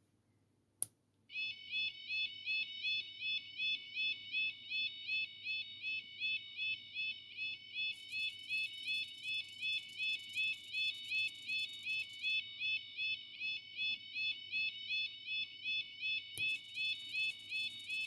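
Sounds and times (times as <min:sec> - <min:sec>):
level crossing warning alarm: 0:01.3 - 0:18.0
faint high buzz: 0:07.9 - 0:12.4, 0:16.4 - 0:18.0.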